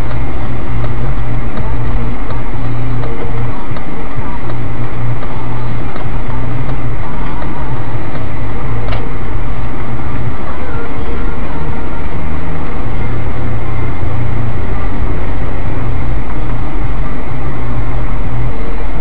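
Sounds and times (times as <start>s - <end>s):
truck engine and road noise: 0.0s - 19.0s
sharp click: 8.9s - 9.1s.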